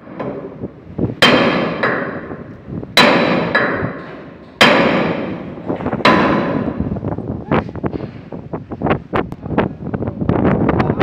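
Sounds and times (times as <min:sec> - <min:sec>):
hammer striking steel: 0:00.0 - 0:00.6, 0:01.2 - 0:06.9.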